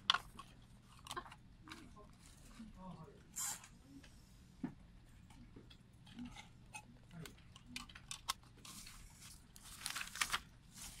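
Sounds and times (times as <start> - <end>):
paper and card rustling: 7.2 - 11.0.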